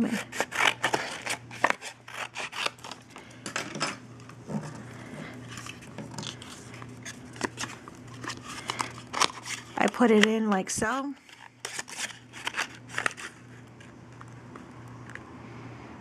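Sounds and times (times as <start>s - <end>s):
scissors snipping cardstock: 0.0s - 3.0s
paper rubbing and shuffling: 4.5s - 10.3s.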